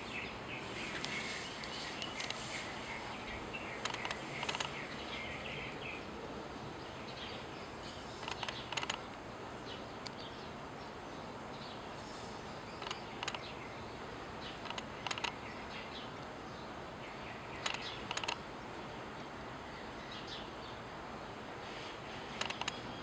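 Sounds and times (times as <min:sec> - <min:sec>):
steady hiss: 0:00.0 - 0:23.0
autofocus motor clicking: 0:03.8 - 0:04.8, 0:08.2 - 0:09.0, 0:12.8 - 0:13.4, 0:14.6 - 0:15.4, 0:17.6 - 0:18.4, 0:22.4 - 0:22.8.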